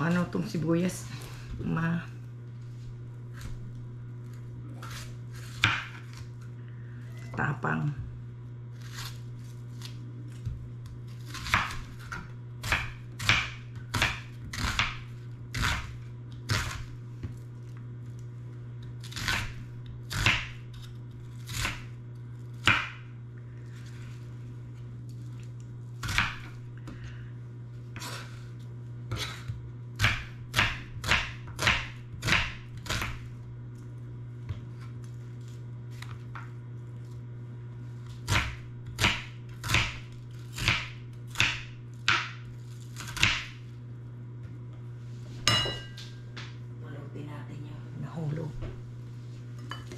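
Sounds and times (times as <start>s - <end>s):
knife chopping onion on board: 4.8s - 6.3s, 10.4s - 17.4s, 19.2s - 21.9s, 22.5s - 23.1s, 26.0s - 26.6s, 29.1s - 33.3s, 38.3s - 42.4s, 43.0s - 43.6s.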